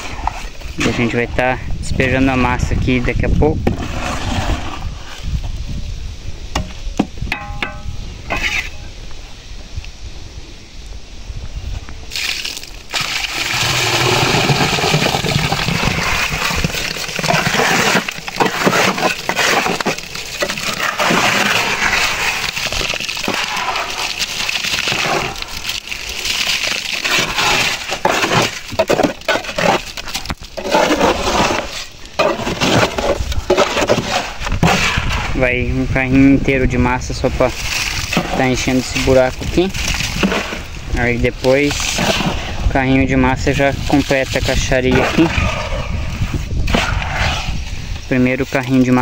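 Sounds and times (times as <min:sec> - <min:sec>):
wet concrete sliding and slopping: 0:12.1 - 0:35.4, 0:36.6 - 0:49.0
scraping and knocking strokes: 0:13.6 - 0:25.5.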